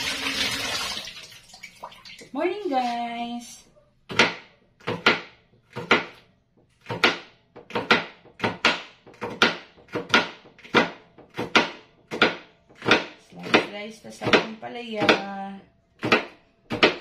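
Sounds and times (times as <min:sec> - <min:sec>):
knife chopping on cutting board: 0:04.1 - 0:06.2, 0:06.8 - 0:15.3, 0:16.0 - 0:17.0.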